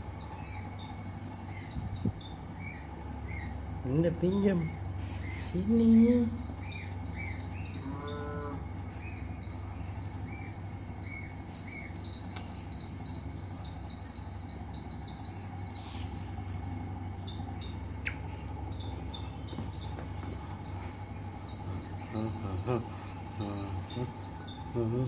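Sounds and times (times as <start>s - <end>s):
steady low hum: 0.0s - 25.0s
otter chirping squeaks: 6.6s - 25.0s.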